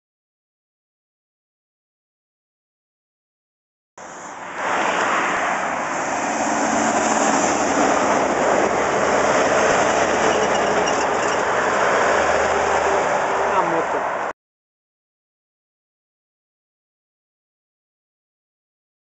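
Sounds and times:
truck driving past: 4.0 - 13.9.

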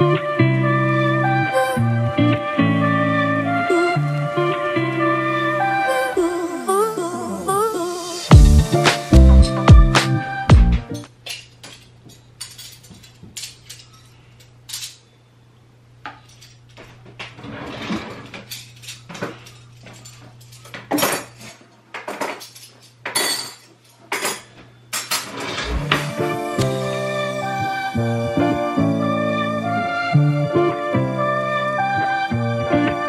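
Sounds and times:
dishes and cutlery clinking: 10.9 - 15.2, 16.0 - 26.2.

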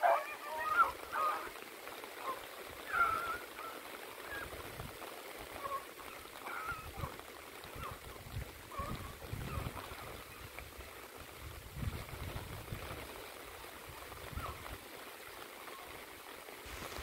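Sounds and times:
dogs baying: 0.0 - 1.5
steady hiss: 0.0 - 17.0.

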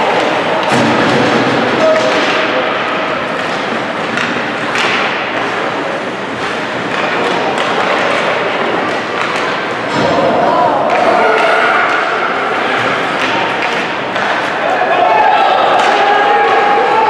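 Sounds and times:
ice rink din: 0.0 - 17.0
stick and puck knocks: 1.8 - 5.8, 6.4 - 10.3.

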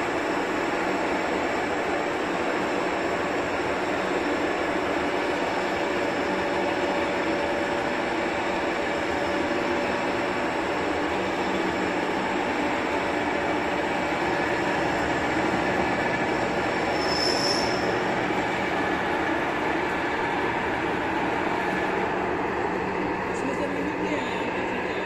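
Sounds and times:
lathe running: 0.0 - 25.0
high squeal: 16.9 - 18.0.

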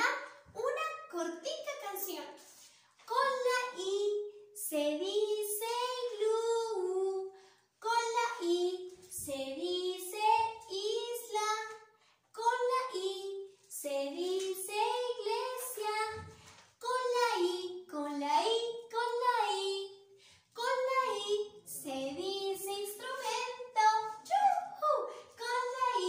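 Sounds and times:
woman singing: 20.6 - 26.0.

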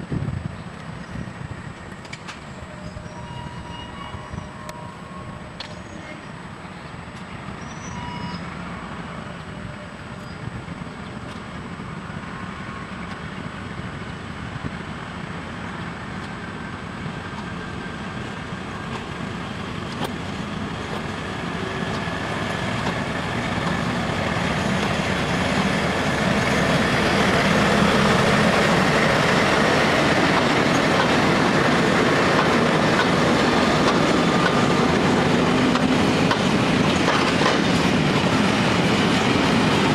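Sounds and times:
diesel locomotive engines: 0.0 - 39.9.

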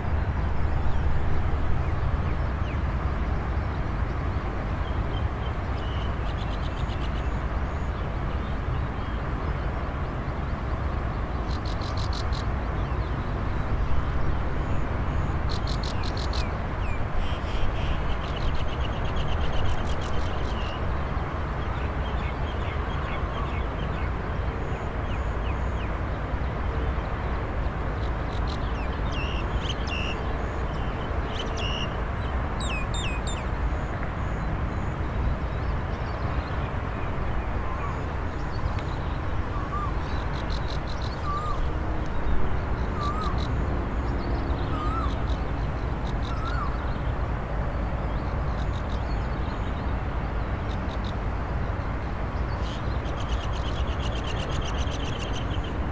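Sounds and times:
birds calling: 38.6 - 41.8, 43.0 - 43.6, 44.7 - 45.4, 46.1 - 46.9.

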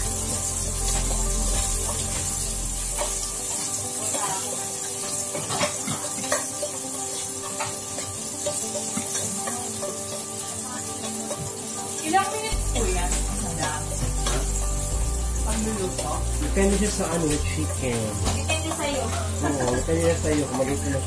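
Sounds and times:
food sizzling in oil: 0.0 - 21.0.

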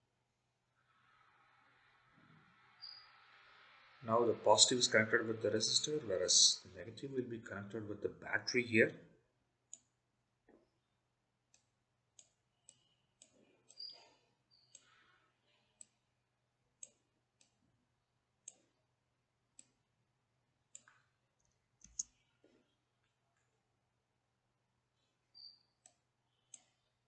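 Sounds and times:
computer mouse clicks: 11.5 - 16.0, 16.8 - 17.6, 18.4 - 18.8, 19.5 - 19.8, 20.7 - 22.6, 25.3 - 26.9.

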